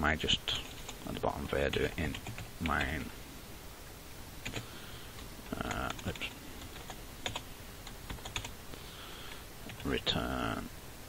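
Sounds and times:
computer keyboard typing: 0.6s - 2.9s, 4.4s - 8.5s, 9.3s - 9.9s.

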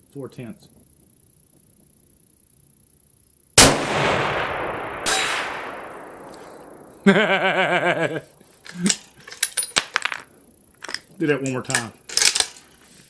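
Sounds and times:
rifle shot with echo: 3.6s - 7.1s
small metallic clicks: 8.6s - 12.8s.

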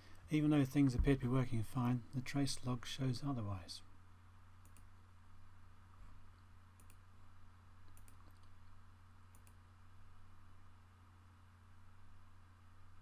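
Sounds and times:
low electrical hum: 0.0s - 13.0s
mouse and keyboard clicks: 7.9s - 8.6s.

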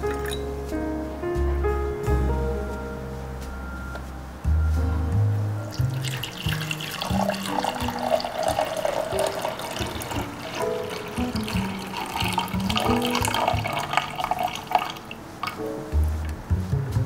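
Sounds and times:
background music: 0.0s - 17.0s
water pouring into reservoir: 5.7s - 15.6s.

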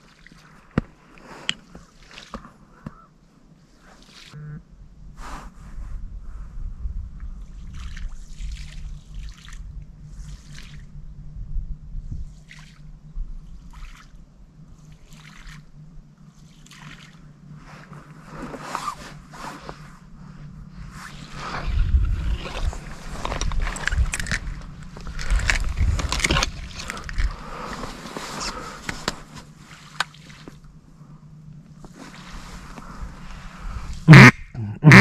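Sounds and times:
water splashing and trickling: 0.0s - 2.6s, 3.8s - 4.4s, 7.5s - 10.9s, 12.3s - 12.9s, 13.6s - 14.2s, 14.8s - 15.8s, 16.4s - 17.3s, 29.5s - 30.7s
wind rumble on microphone: 4.4s - 16.4s, 17.6s - 29.4s, 31.8s - 34.6s.

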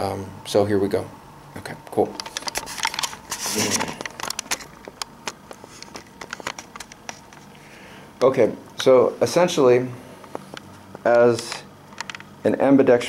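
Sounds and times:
camera handling clicks and crackles: 4.0s - 7.5s.

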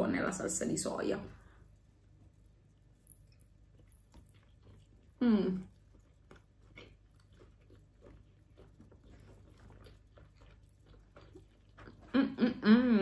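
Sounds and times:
person humming mmm: 5.2s - 5.7s, 12.0s - 13.0s.

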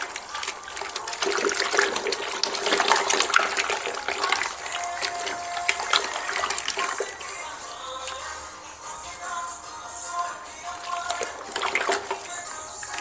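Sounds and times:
plaster sloshing in bucket: 0.0s - 9.2s, 10.2s - 13.0s.

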